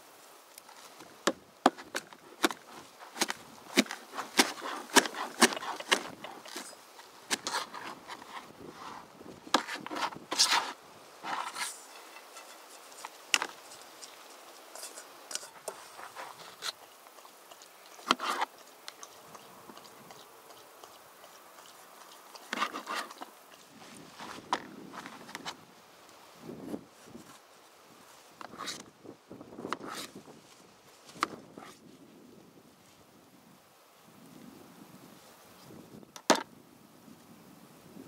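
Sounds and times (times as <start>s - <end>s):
knocks and scrapes: 0.8s - 16.8s, 18.0s - 18.5s, 22.5s - 23.3s
knife chopping on plastic board: 1.3s - 6.6s.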